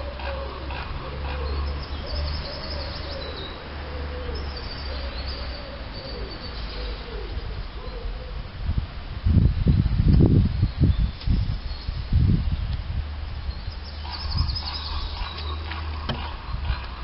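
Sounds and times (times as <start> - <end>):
pigeon cooing: 0.0 - 8.4
faint high birdsong: 1.2 - 8.3, 9.5 - 12.8, 13.4 - 16.2.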